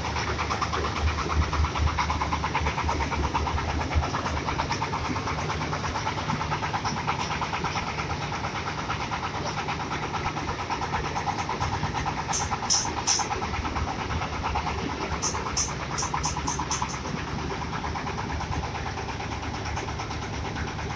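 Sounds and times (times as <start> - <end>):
engine idling: 0.0 - 20.9
short high-pitched ticks: 12.3 - 13.3, 15.2 - 17.0.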